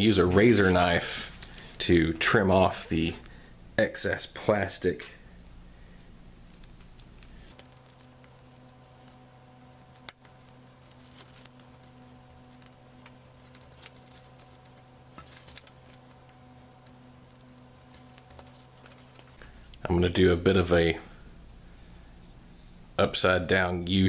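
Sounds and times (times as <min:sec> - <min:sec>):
steady low hum: 0:00.0 - 0:24.0
craft knife cutting plastic: 0:06.8 - 0:19.4.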